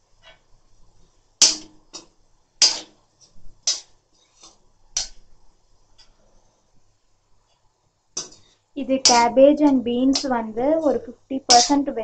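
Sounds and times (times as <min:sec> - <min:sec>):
metal spoon scraping a metal pan: 0:02.6 - 0:02.9, 0:09.0 - 0:09.3, 0:10.0 - 0:11.9.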